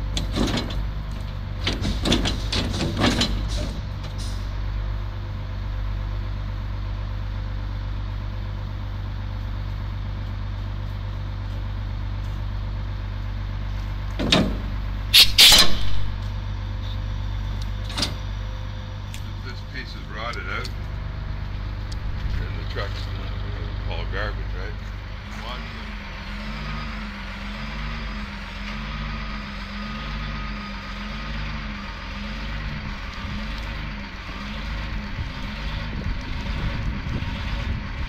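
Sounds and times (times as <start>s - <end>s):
truck engine idling: 0.0s - 38.0s
loud metal clanks: 1.6s - 4.5s, 14.2s - 16.3s
hydraulics lowering arm: 14.1s - 17.0s.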